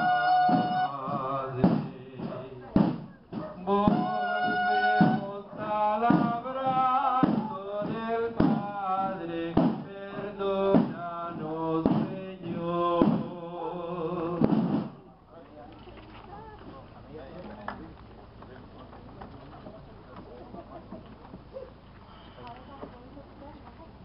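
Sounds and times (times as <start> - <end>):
regular beat: 0.0 - 13.4
slow hymn singing: 0.0 - 14.9.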